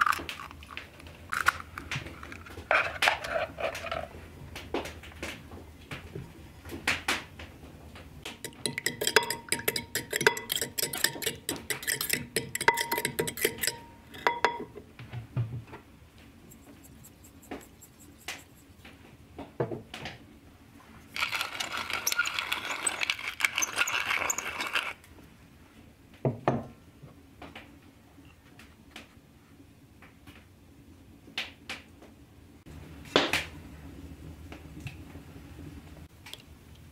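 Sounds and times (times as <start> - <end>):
fork whisking eggs in bowl: 8.4 - 14.6, 16.4 - 18.8, 21.2 - 25.0.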